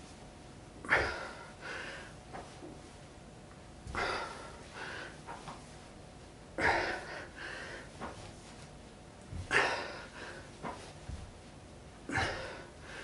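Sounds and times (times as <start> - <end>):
man breathing heavily: 0.8 - 2.7, 3.9 - 5.7, 6.6 - 8.3, 9.3 - 11.2, 12.0 - 13.0.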